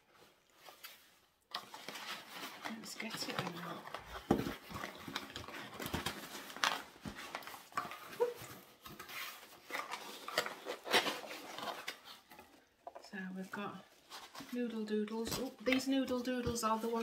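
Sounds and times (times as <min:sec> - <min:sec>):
packing filler rustling: 0:00.0 - 0:12.8.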